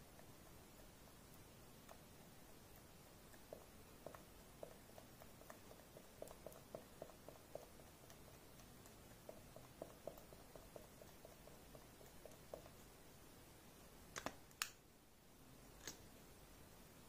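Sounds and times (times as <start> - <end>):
soft sticky ticks in slime: 0.0 - 13.0.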